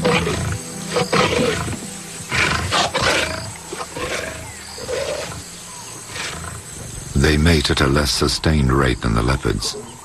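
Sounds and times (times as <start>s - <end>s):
lions growling and snarling: 0.0s - 6.8s
background music: 0.0s - 10.0s.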